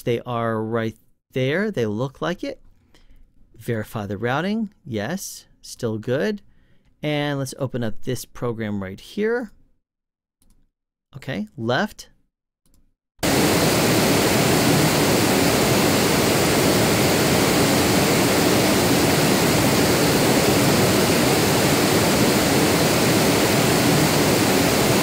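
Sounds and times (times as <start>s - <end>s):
pink noise hiss: 13.2s - 25.0s.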